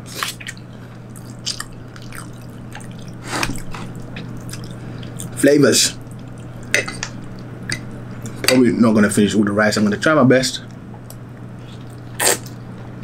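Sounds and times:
steady low hum: 0.0s - 13.0s
wet mouth sounds eating: 0.1s - 5.4s, 11.6s - 12.6s.

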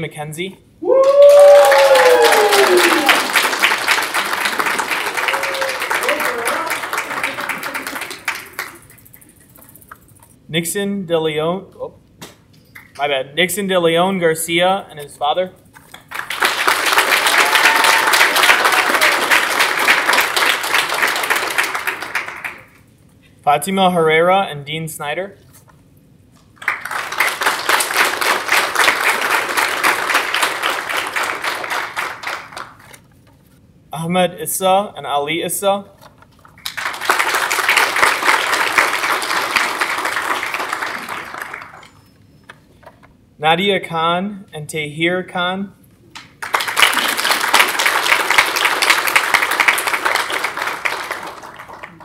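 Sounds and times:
audience applauding: 1.0s - 9.2s, 16.1s - 22.8s, 26.6s - 33.0s, 36.6s - 42.0s, 46.4s - 52.0s.

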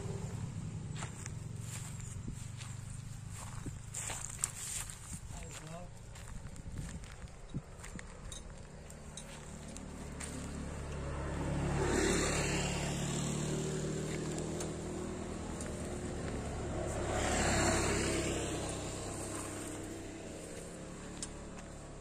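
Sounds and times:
vehicles passing on road: 0.0s - 22.0s.

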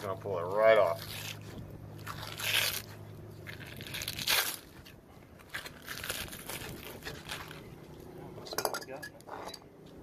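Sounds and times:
fish skin tearing: 1.0s - 7.7s.

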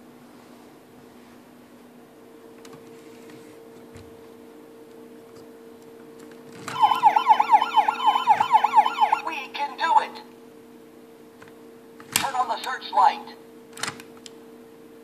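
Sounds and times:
toy police siren warbling: 6.7s - 9.6s.

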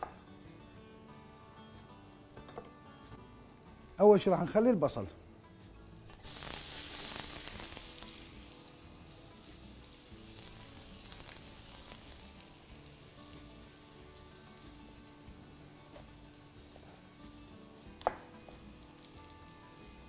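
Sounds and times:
onion sizzling in hot oil: 6.0s - 20.0s.

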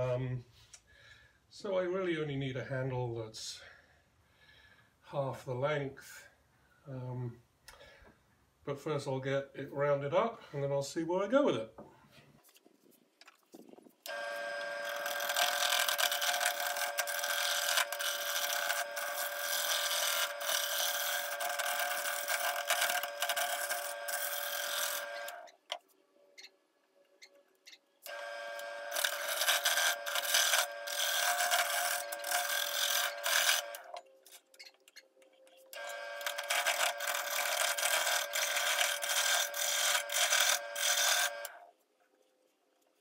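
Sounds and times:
tool rasping on wood: 14.1s - 25.4s, 28.1s - 33.9s, 35.8s - 41.5s
lathe motor whine: 14.1s - 25.5s, 28.1s - 34.0s, 35.8s - 41.6s.

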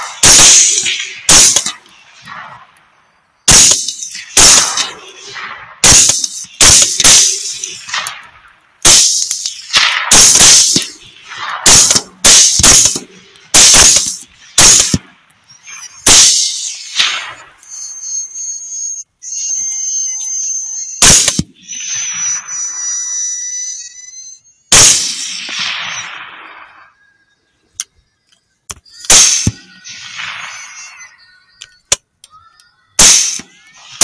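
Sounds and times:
rifle shots with echo: 0.0s - 15.4s, 16.0s - 17.6s, 21.0s - 21.7s, 24.7s - 27.1s, 29.1s - 31.1s, 33.0s - 34.0s
high-pitched whine: 9.2s - 27.6s.

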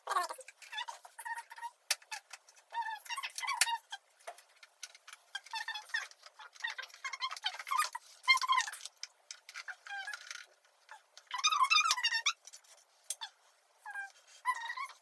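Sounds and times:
high wavering squeaks: 13.2s - 15.0s.

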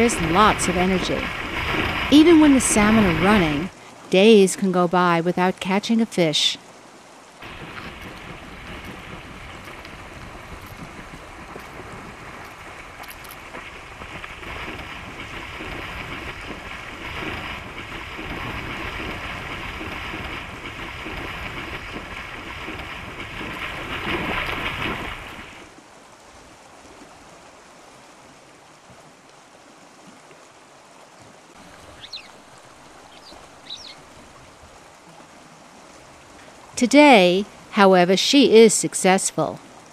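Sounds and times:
animal splashing through water: 0.0s - 3.8s, 7.4s - 25.8s.

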